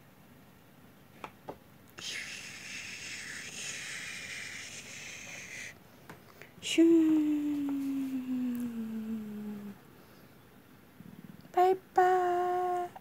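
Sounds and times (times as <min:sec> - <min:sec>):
woman humming: 0:02.0 - 0:05.7, 0:06.6 - 0:09.8, 0:11.5 - 0:13.0.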